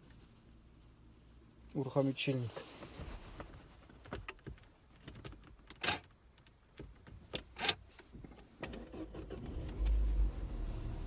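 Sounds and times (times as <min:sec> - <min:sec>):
car engine starting: 0:07.5 - 0:11.0.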